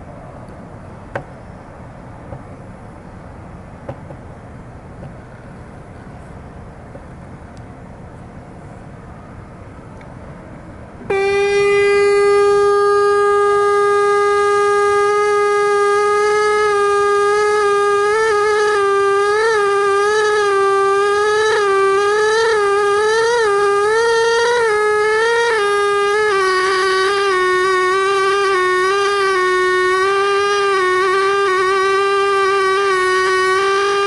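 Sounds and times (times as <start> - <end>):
pneumatic air scribe buzzing: 10.9 - 34.0.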